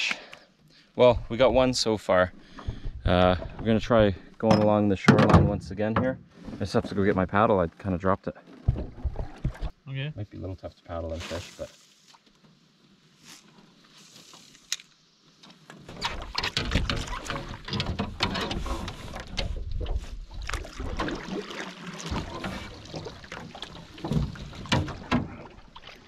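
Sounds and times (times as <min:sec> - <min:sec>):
paddle splashing through water: 0:18.6 - 0:26.0.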